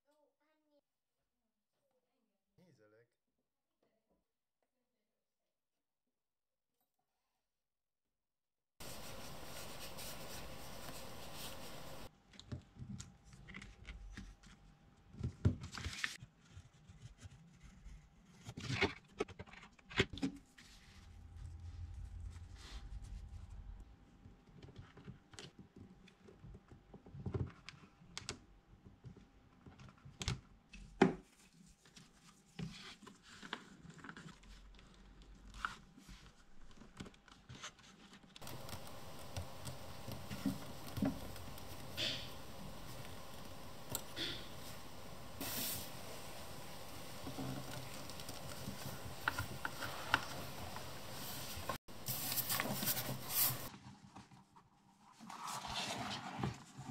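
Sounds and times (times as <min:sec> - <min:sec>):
leather rustling: 0:08.8 - 0:12.1.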